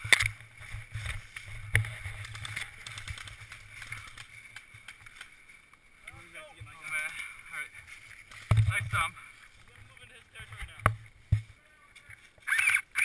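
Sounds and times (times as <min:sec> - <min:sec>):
sharp clicks: 0:12.4 - 0:13.0.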